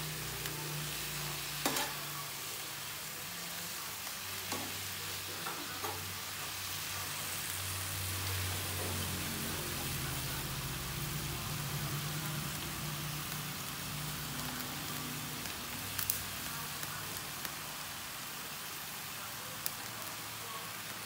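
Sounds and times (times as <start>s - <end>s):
meat sizzling in a frying pan: 0.0s - 21.0s
chopsticks tapping a pan: 1.6s - 2.0s.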